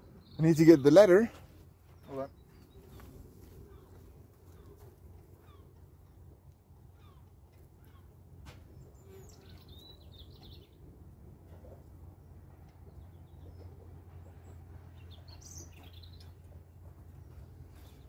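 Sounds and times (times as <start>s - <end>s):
low outdoor background rumble: 1.7s - 18.0s.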